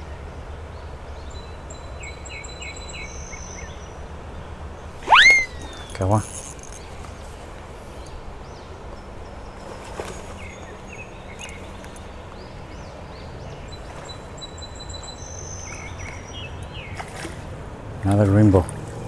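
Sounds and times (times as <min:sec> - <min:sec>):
birds calling: 0:04.7 - 0:17.2
thin high whistles: 0:05.0 - 0:06.8
short chirps: 0:05.1 - 0:06.6.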